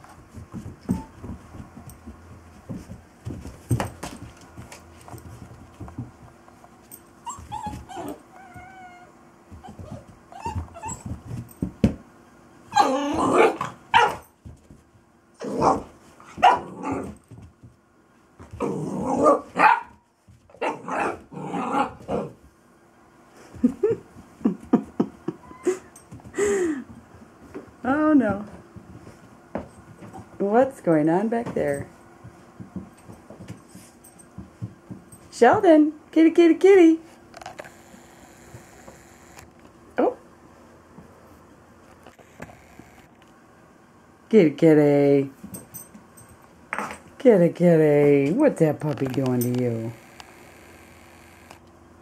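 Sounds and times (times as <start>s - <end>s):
soft knocks and scuffling: 0.0s - 8.7s, 26.0s - 35.8s
puppy barking and growling: 7.3s - 11.0s, 12.7s - 14.3s, 15.4s - 17.2s, 18.6s - 22.4s.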